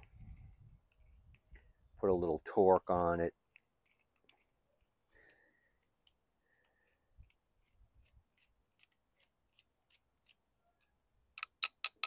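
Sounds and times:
small metal clicks of screwdriver: 6.0s - 12.0s.

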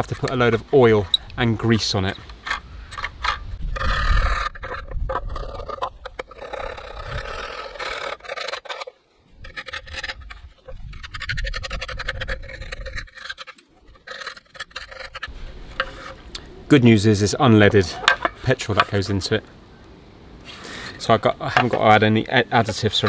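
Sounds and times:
tool scraping rust off metal: 0.0s - 16.3s, 17.7s - 19.0s.

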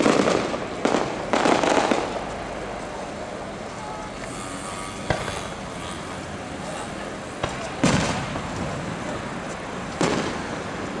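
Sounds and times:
firework shells bursting: 4.8s - 8.6s.

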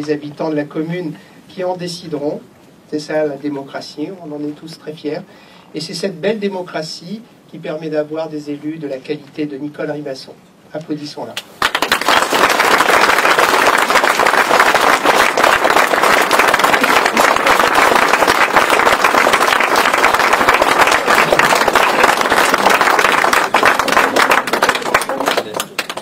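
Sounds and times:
audience applauding: 11.6s - 26.0s.

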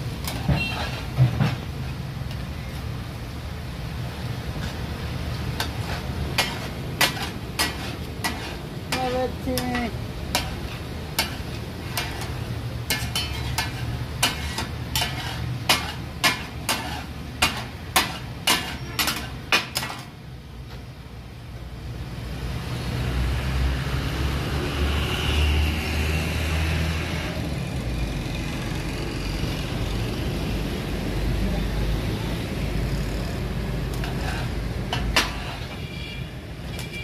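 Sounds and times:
metal spatulas clanking on iron griddle: 0.2s - 2.0s, 5.5s - 20.2s, 33.9s - 35.8s.

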